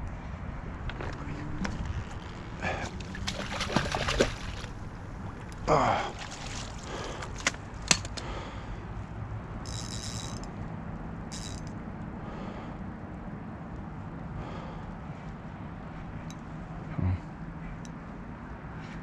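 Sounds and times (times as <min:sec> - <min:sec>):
fish splashing in water: 0:02.7 - 0:07.6
rod and reel clicks and knocks: 0:09.6 - 0:10.6, 0:11.3 - 0:11.8.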